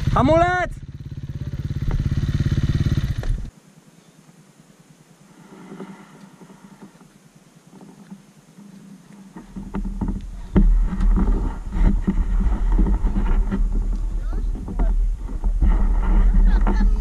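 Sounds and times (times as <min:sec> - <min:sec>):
dirt bike engine idling: 0:00.0 - 0:03.6, 0:09.3 - 0:17.0.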